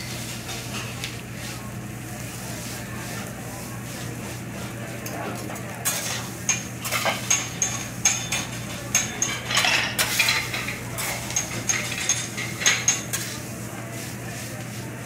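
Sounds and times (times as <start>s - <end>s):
metal spatulas clacking on griddle: 5.8s - 13.4s.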